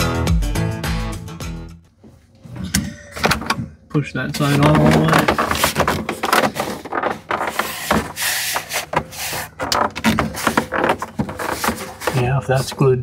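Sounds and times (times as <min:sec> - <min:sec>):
plastic scraping: 0:04.3 - 0:13.0
plastic rubbing on plastic: 0:04.4 - 0:13.0
plastic knocking: 0:04.5 - 0:12.8.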